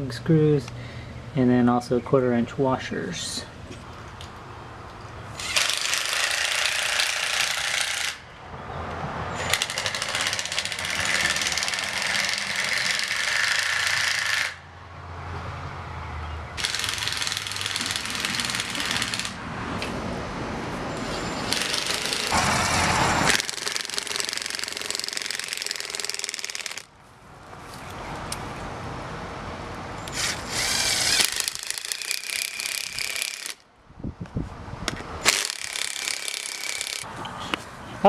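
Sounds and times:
impact driver hammering screws: 5.4s - 8.2s, 9.4s - 14.6s, 16.6s - 19.4s, 21.5s - 22.4s, 23.3s - 26.9s, 30.1s - 33.6s, 35.2s - 37.1s.

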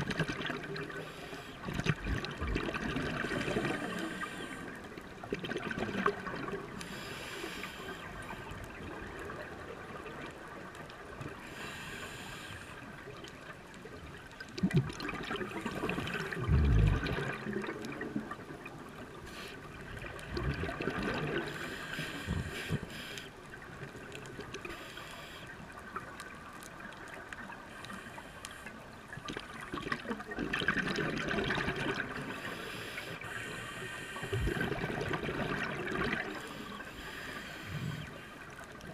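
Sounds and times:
regulator hissing inhale: 1.0s - 1.6s, 3.5s - 4.8s, 6.8s - 8.4s, 11.4s - 12.8s, 19.3s - 19.6s, 21.5s - 23.4s, 24.7s - 25.6s, 32.3s - 34.8s, 36.3s - 38.4s
bubbling exhaled air: 15.1s - 18.1s, 20.0s - 22.9s, 34.0s - 36.4s.

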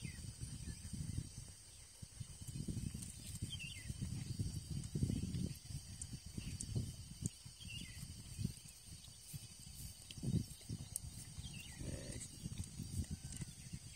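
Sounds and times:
high insect drone: 0.0s - 13.9s
wind buffeting microphone: 0.0s - 13.9s.

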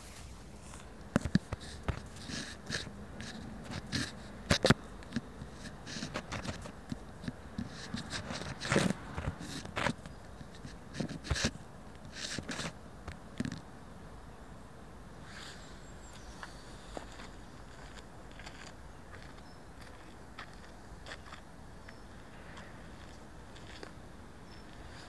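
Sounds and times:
fabric rubbing over microphone: 0.0s - 4.4s, 7.6s - 10.0s.

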